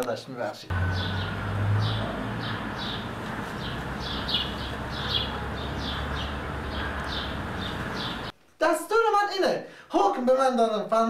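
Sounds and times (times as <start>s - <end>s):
small birds chirping: 0.7s - 8.3s.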